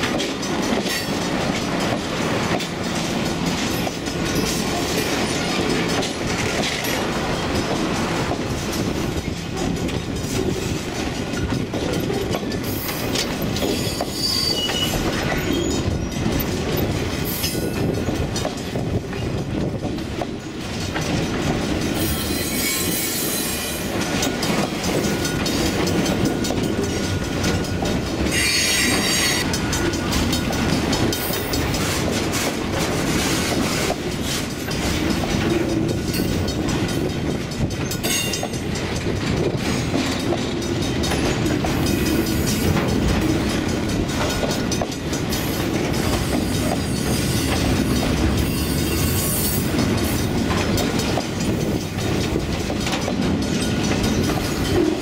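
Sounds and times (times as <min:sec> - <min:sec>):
train cars rumbling over rails: 0:00.0 - 0:55.0
train wheels squealing: 0:11.4 - 0:18.3, 0:21.9 - 0:32.0, 0:33.2 - 0:37.1, 0:44.3 - 0:50.3.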